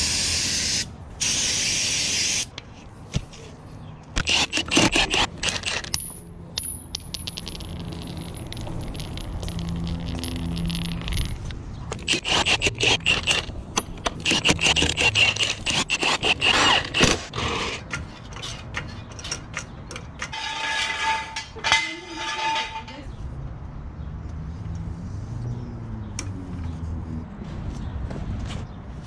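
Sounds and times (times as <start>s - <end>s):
metal sockets clinking on concrete: 4.2s - 16.0s, 17.7s - 23.1s.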